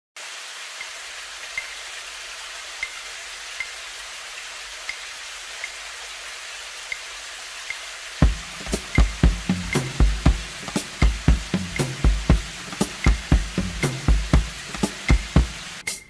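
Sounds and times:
hiss of falling water: 0:00.2 - 0:16.0
faint light ticks: 0:02.8 - 0:03.8, 0:04.8 - 0:05.8, 0:06.9 - 0:07.1, 0:07.7 - 0:07.9.

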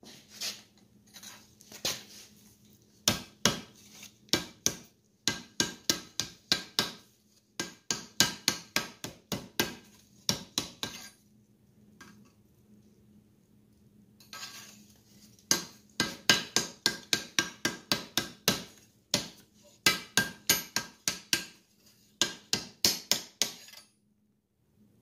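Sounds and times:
hammer striking hot steel: 0:15.5 - 0:21.6.

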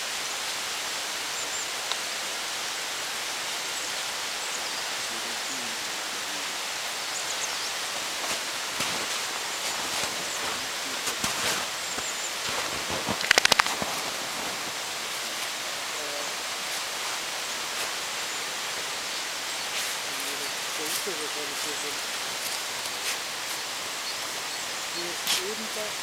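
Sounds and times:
steady hiss: 0:00.0 - 0:26.0
snow crunching: 0:07.2 - 0:26.0.

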